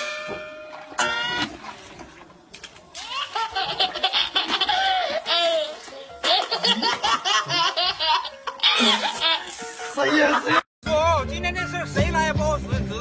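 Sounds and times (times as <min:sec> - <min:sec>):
high-pitched laughter: 0:03.0 - 0:10.6.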